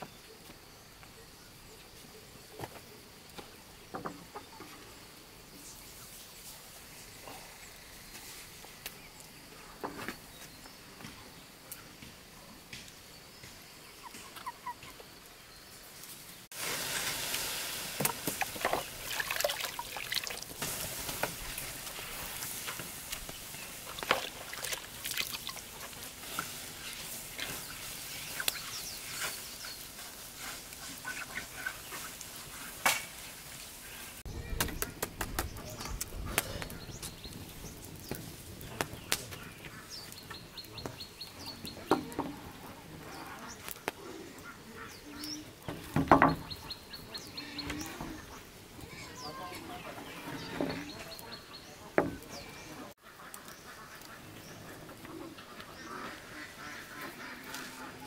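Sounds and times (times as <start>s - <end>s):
birds calling: 6.9s - 16.5s, 18.0s - 58.0s
wood fire crackling: 15.0s - 58.0s.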